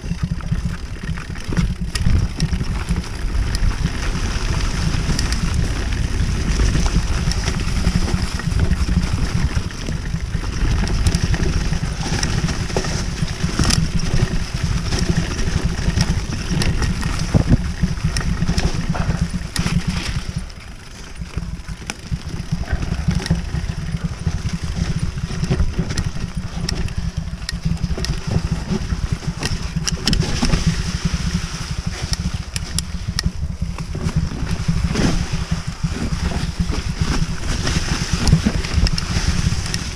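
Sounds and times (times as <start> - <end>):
bike rattling over bumps: 0.0 - 39.9
bike tyres on dirt: 0.0 - 39.9
wind rumbling on microphone: 0.0 - 39.9.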